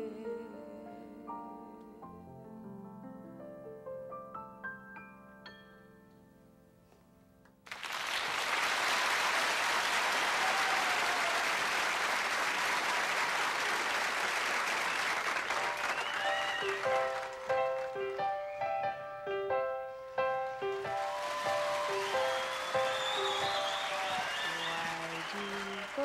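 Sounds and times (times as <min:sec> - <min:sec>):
audience applause: 0:07.6 - 0:18.6, 0:20.2 - 0:26.0.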